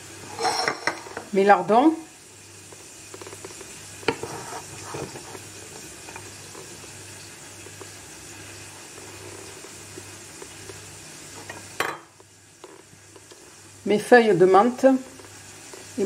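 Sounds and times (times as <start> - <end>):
faint pan sizzle: 0.0 - 16.0
metal spoon scraping saucepan: 0.3 - 1.2, 4.1 - 5.4.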